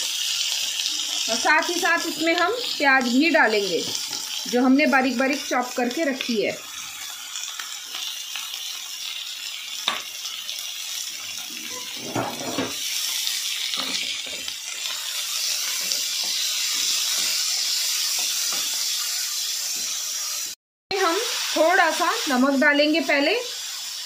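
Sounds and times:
vegetables sizzling in oil: 0:00.0 - 0:24.0
spoon scraping a pan: 0:11.6 - 0:12.8, 0:13.7 - 0:20.5.

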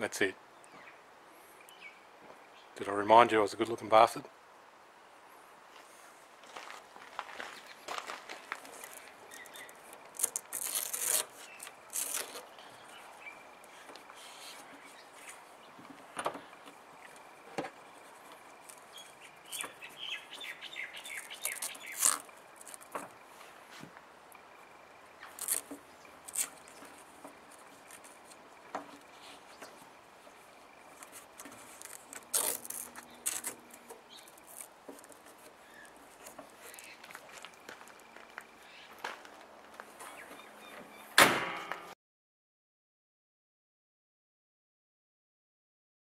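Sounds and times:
bird chirping: 0:00.0 - 0:02.9, 0:08.8 - 0:09.9, 0:11.4 - 0:23.5, 0:24.3 - 0:34.6, 0:35.4 - 0:39.0, 0:40.0 - 0:41.2.

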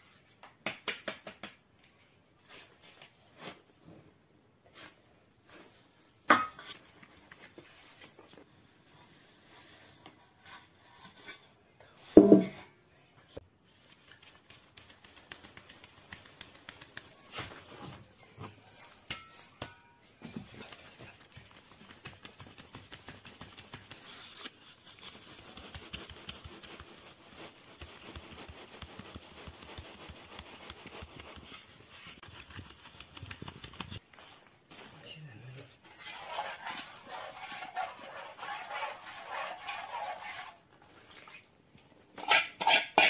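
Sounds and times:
sieve knocks: 0:12.2 - 0:12.6
flour rustling through sieve: 0:20.4 - 0:33.1.

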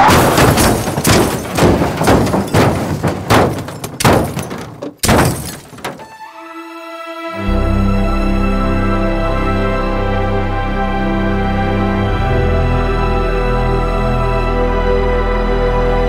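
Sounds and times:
heavy crashing thuds: 0:00.0 - 0:06.1
soft sustained music tones: 0:06.0 - 0:16.0.

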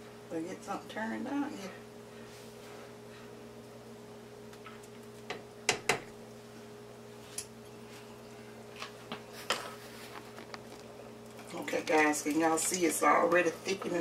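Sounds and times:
spoon knocking on metal pot: 0:05.3 - 0:06.1.

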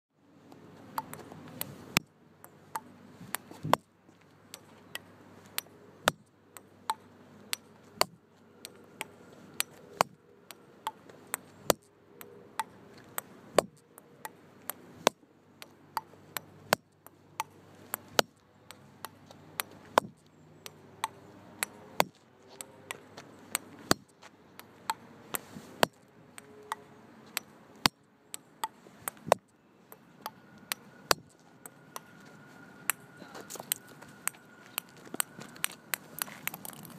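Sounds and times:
table tennis ball clicks: 0:00.9 - 0:02.1.

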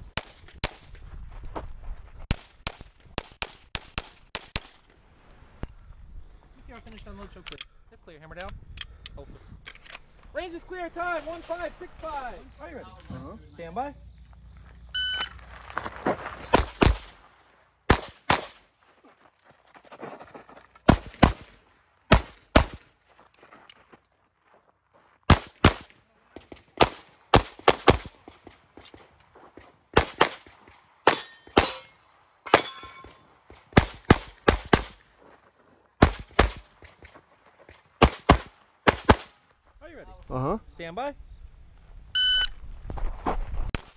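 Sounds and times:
shot timer beep: 0:15.0 - 0:15.3, 0:42.2 - 0:42.6
pistol shots: 0:16.5 - 0:17.2, 0:17.9 - 0:18.6, 0:20.9 - 0:22.8, 0:25.3 - 0:28.6, 0:29.9 - 0:35.0, 0:36.0 - 0:37.0, 0:38.0 - 0:39.4
steel targets ringing: 0:31.1 - 0:33.3.

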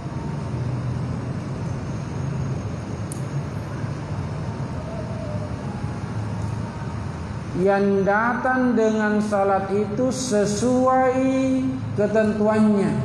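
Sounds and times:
low hum: 0:00.0 - 0:09.8.

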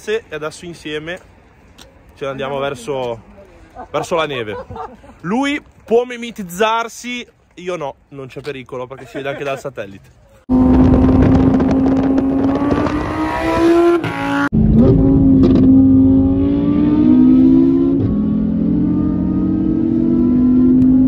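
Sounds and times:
sports car engine accelerating: 0:10.5 - 0:21.0.

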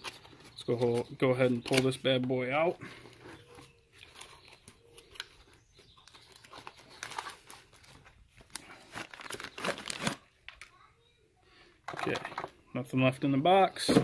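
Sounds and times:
cardboard box and plastic bag rustling: 0:06.0 - 0:10.2.

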